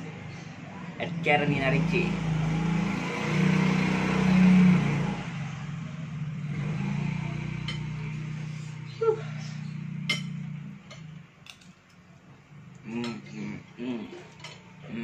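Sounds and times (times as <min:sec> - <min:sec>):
vehicle engine running: 0:00.0 - 0:11.3.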